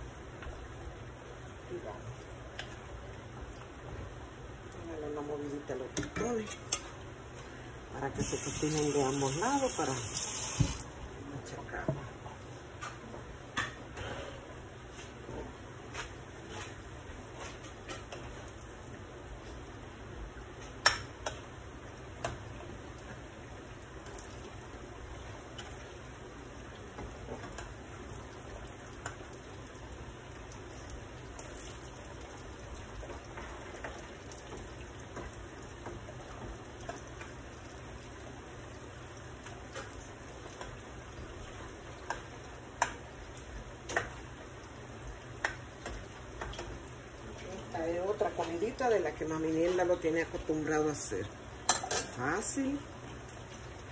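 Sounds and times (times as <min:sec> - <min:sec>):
plantain slices frying in oil: 0:00.0 - 0:11.8, 0:15.1 - 0:53.9.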